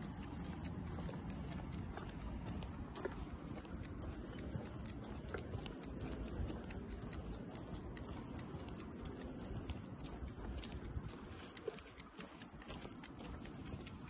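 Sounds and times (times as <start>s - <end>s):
dog claws pattering: 0.0s - 14.0s
footsteps on pavement: 0.0s - 14.0s.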